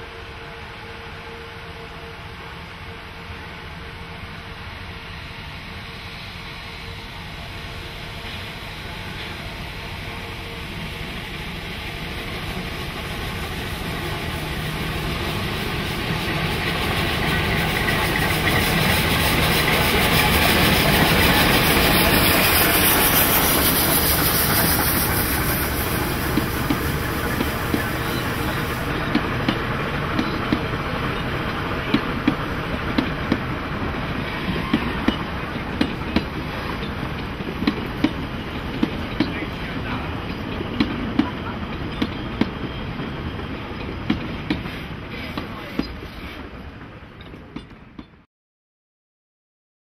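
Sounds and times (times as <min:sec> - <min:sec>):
steam locomotive passing: 0:00.0 - 0:48.1
steam hissing: 0:05.2 - 0:41.9
train wheels clicking on rail joints: 0:11.0 - 0:48.2.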